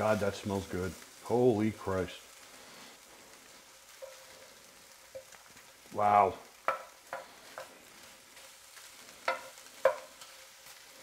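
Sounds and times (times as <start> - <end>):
shrimp sizzling in a skillet: 0.0 - 11.0
spoon knocking and scraping pan: 3.9 - 5.4, 6.5 - 10.5.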